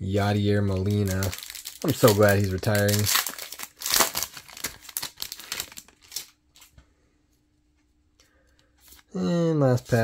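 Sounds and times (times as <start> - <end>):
card pack wrapper crinkling: 0.6 - 6.7.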